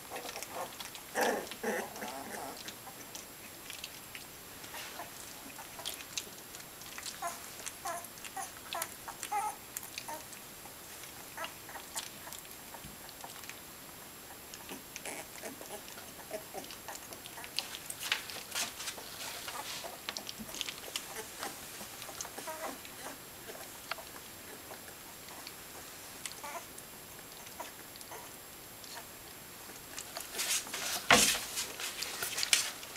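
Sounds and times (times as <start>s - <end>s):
paws scuffling on blanket: 4.6s - 10.2s, 16.6s - 24.2s, 30.0s - 32.9s
puppies squeaking: 7.0s - 10.3s, 19.5s - 23.7s, 26.4s - 26.7s.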